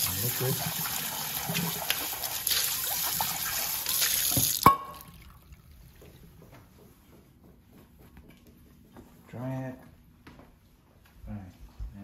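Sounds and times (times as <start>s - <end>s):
faucet water splashing into metal bowl: 0.0s - 5.4s.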